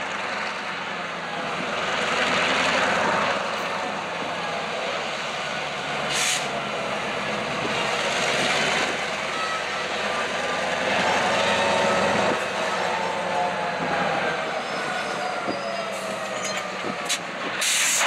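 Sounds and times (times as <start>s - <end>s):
diesel locomotive engine running: 0.0s - 18.0s
brief hiss: 17.6s - 18.0s.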